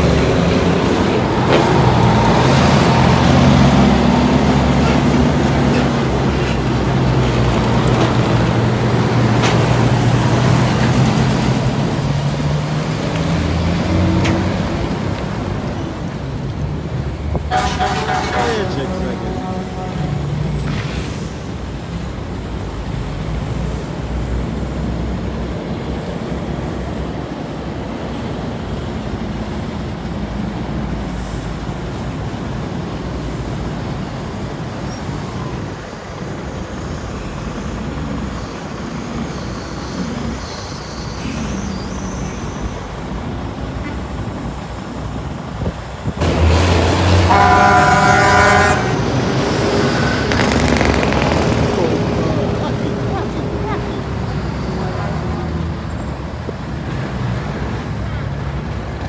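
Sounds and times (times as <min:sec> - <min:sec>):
heavy truck engines rumbling: 0:00.0 - 0:59.0
truck air horn blast: 0:17.5 - 0:20.7, 0:46.9 - 0:50.6.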